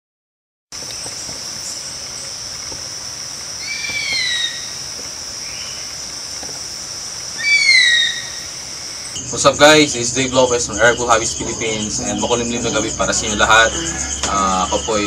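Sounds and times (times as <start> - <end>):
insects droning: 0.7 - 15.0
faint short bird call: 3.6 - 4.8
bird of prey screaming: 3.6 - 5.9, 7.4 - 9.2.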